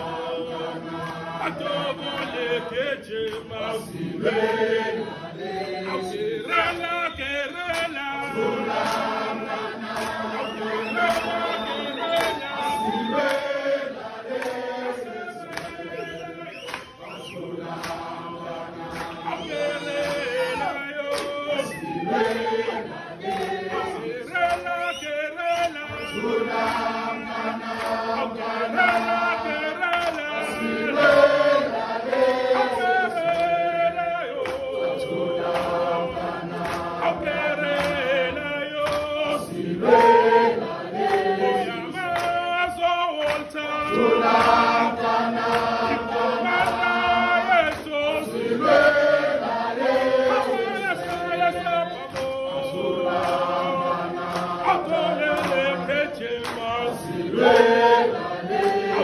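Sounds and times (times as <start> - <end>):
group singing: 0.0 - 59.0
man leading song: 0.0 - 59.0.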